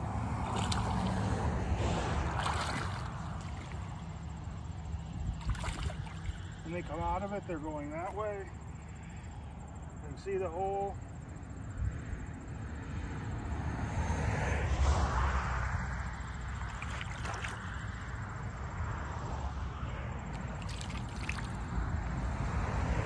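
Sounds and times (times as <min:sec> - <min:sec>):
steady low rumble: 0:00.0 - 0:10.2
shallow water sloshing and splashing: 0:00.3 - 0:06.8, 0:16.5 - 0:18.0, 0:20.4 - 0:21.8.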